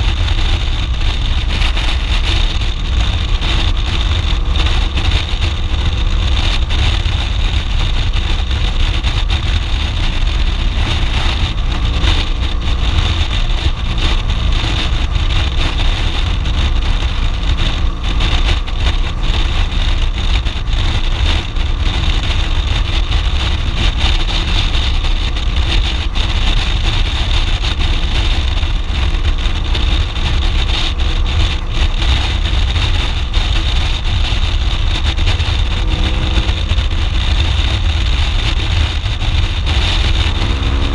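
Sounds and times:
buffeting wind rush: 0.0 - 40.9
motorcycle engine cruising: 0.0 - 40.9.

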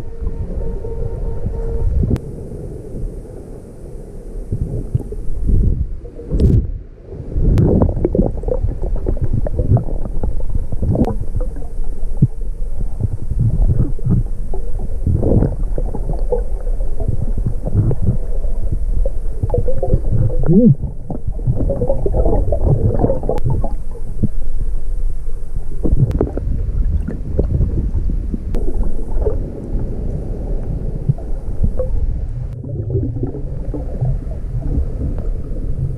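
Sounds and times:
underwater rumbling and gurgling: 0.0 - 35.9
exhaled breath bubbling: 4.4 - 35.9.

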